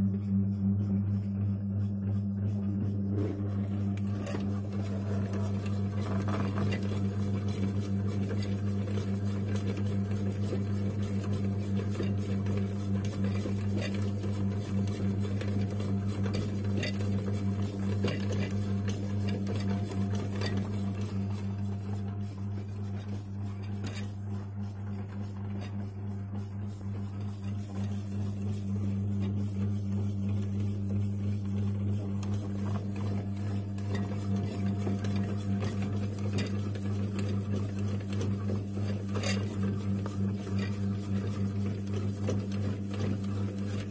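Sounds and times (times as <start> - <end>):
bread maker motor humming: 0.0 - 43.9.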